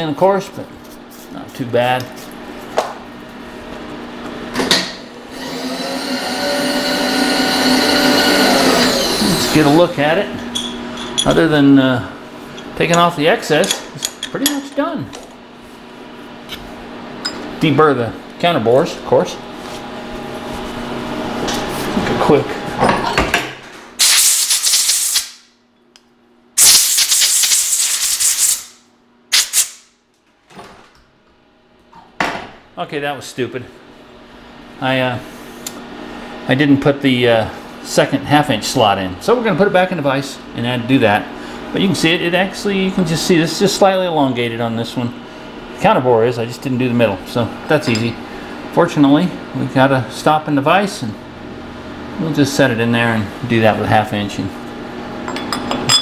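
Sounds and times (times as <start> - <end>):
electric motor whining: 5.3 - 9.8
compressed air hissing: 24.0 - 25.4, 26.6 - 29.8.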